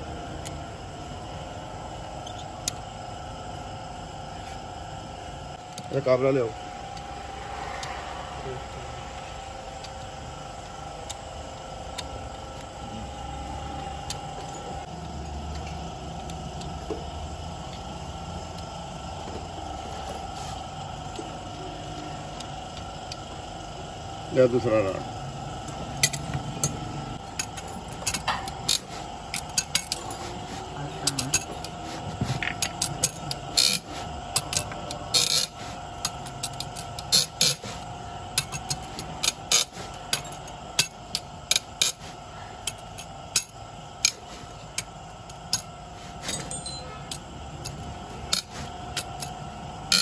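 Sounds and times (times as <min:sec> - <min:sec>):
steady hum: 0:00.0 - 0:50.0
metal tools clinking on engine block: 0:45.5 - 0:50.0.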